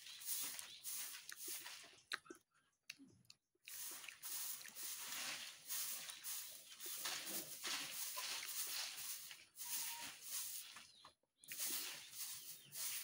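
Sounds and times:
chewing close to microphone: 0.6 - 4.8.

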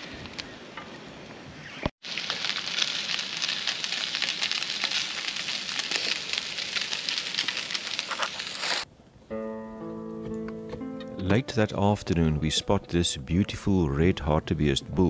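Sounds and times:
bacon sizzling on griddle: 2.0 - 8.8.

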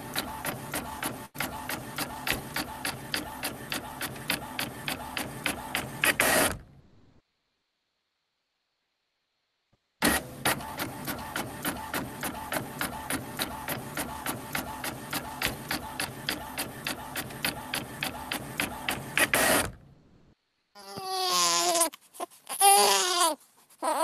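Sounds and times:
machine clicking rapidly: 10.8 - 19.6.

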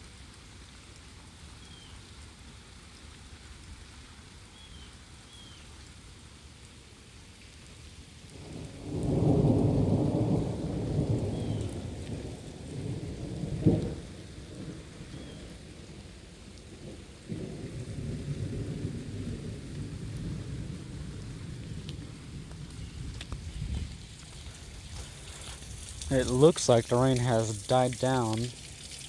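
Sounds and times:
thunder rumbling: 8.4 - 15.2, 16.8 - 28.3.

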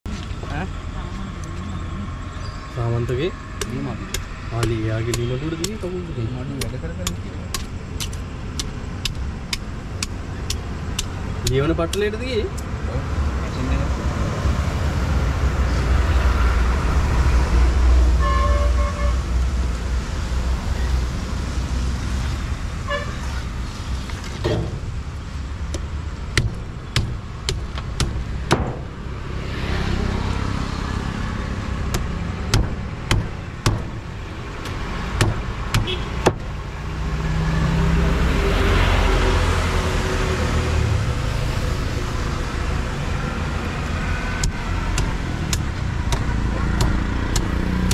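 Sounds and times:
road traffic rumbling: 0.0 - 47.9
vehicle horn tooting: 18.2 - 19.2, 22.9 - 23.2, 35.8 - 36.2
sharp knocks: 25.7 - 29.0, 31.9 - 34.0, 34.6 - 36.5.

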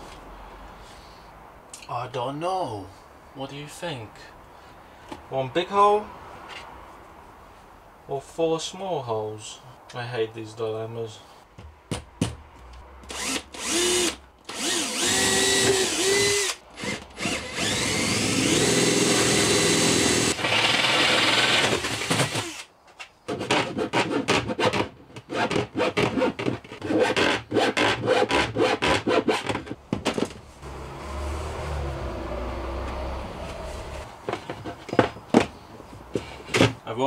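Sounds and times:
cordless drill boring through metal: 13.1 - 22.7.

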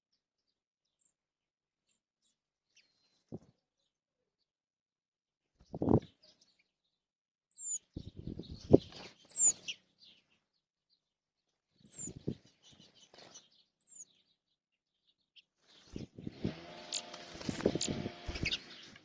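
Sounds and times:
wings fluttering and splashing: 15.7 - 19.0
bird call notes: 16.4 - 19.0.

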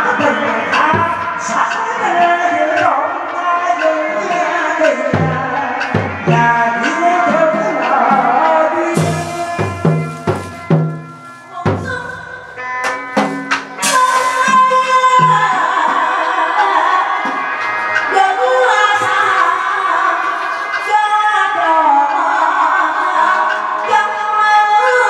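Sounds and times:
sharp percussion strikes: 0.1 - 16.3
low pitched drum strokes: 8.9 - 12.4.

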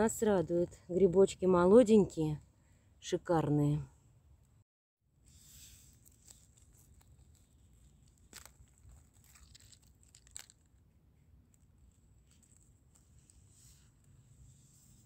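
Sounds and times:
dry leaf litter rustling: 6.0 - 10.7
mushroom stem cracking: 6.0 - 13.0.

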